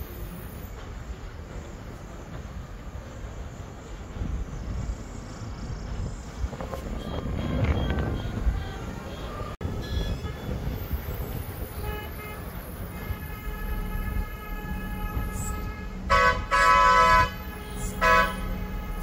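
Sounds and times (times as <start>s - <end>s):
engine and road rumble: 0.0s - 19.0s
vehicle horn blasts: 6.9s - 10.9s, 11.7s - 19.0s.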